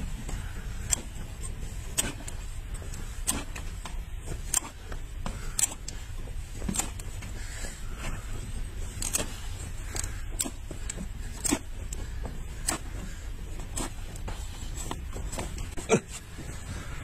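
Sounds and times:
steady low rumble: 0.0 - 17.0
hoof knife cutting strokes: 1.8 - 5.9, 8.9 - 15.6.

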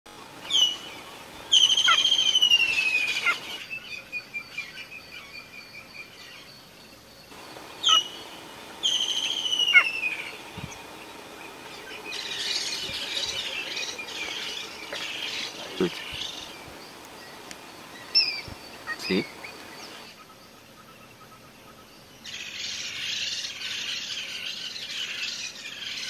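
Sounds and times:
cheetah chirping: 0.4 - 3.6, 7.3 - 20.2.

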